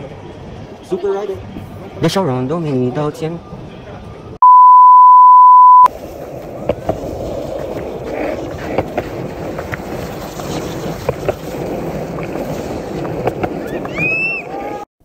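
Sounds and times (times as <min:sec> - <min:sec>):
skateboard wheels rolling on concrete: 0:05.9 - 0:14.9
sharp skateboard clicks: 0:06.2 - 0:14.1.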